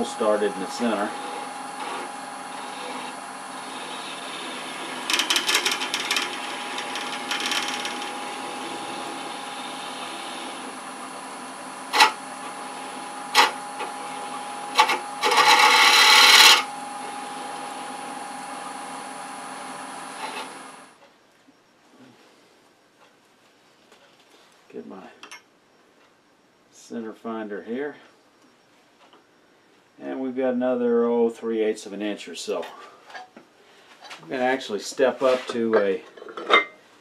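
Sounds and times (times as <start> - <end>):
tool scraping spinning wood: 0.0 - 20.9
wood lathe humming: 0.0 - 21.0
loud harsh cut: 11.6 - 12.4, 13.2 - 17.8.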